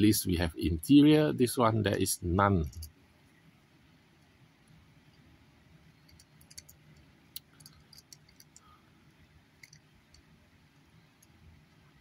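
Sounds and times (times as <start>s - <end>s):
low room hum: 0.0s - 12.0s
toy car clicking in fingers: 6.1s - 8.6s, 9.6s - 10.3s.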